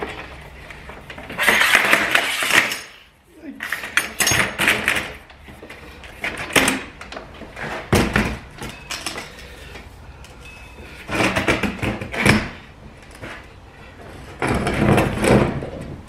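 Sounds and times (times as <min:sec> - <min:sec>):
metal panels knocking and clattering: 0:11.1 - 0:12.6.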